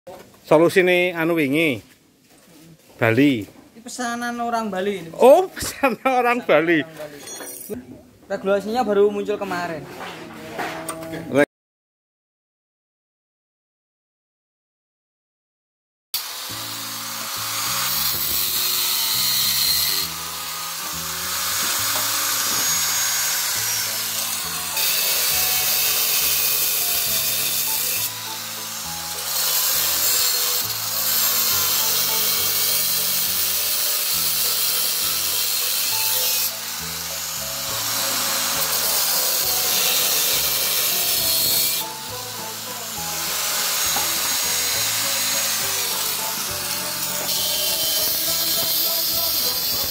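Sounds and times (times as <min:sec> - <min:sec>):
angle grinder cutting steel: 0:16.2 - 0:49.9
background music: 0:16.3 - 0:49.9.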